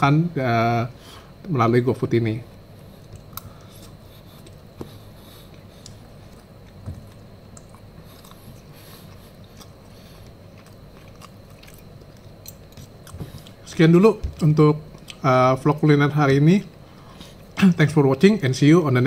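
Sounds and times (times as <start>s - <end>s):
person chewing food: 2.8s - 13.7s, 14.3s - 15.2s.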